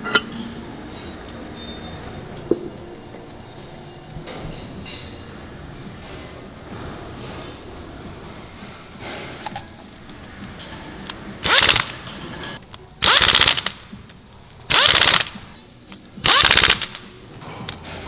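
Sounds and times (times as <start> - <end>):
impact wrench hammering: 11.4 - 12.3, 13.0 - 13.9, 14.7 - 15.5, 16.2 - 17.1.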